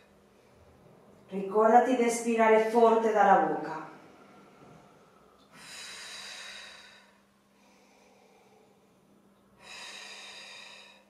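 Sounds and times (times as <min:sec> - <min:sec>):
woman exhaling forcefully: 0:05.5 - 0:07.2, 0:09.6 - 0:11.0.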